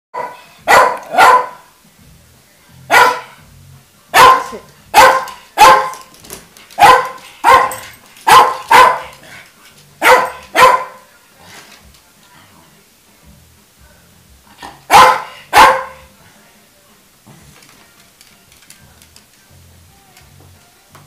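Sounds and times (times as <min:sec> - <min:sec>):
dog barking: 0:00.2 - 0:01.7, 0:02.9 - 0:03.4, 0:04.1 - 0:06.0, 0:06.8 - 0:09.2, 0:10.0 - 0:11.1, 0:14.9 - 0:16.1.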